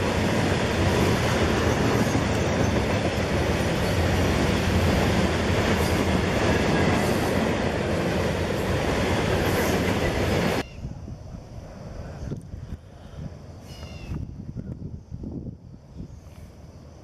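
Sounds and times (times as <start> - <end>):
freight train wheels rumbling on rails: 0.0 - 10.7.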